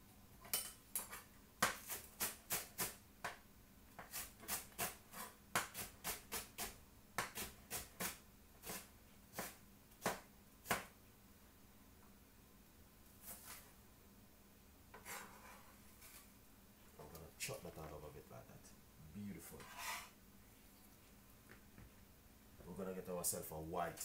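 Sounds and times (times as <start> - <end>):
knife chopping on chopping board: 1.6 - 3.4, 4.0 - 10.9.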